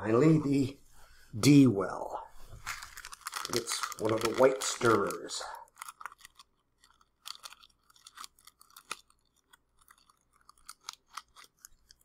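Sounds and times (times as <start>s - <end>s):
plastic wrapper crinkling: 2.4s - 12.0s.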